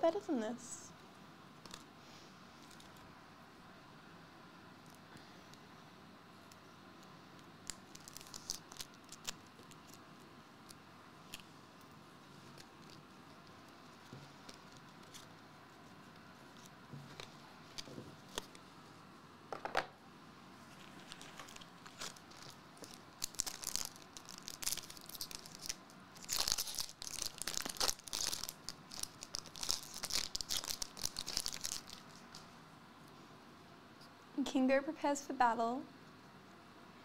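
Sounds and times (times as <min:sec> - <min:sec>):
foil wrapper crinkling: 0:07.6 - 0:10.2, 0:20.7 - 0:32.4.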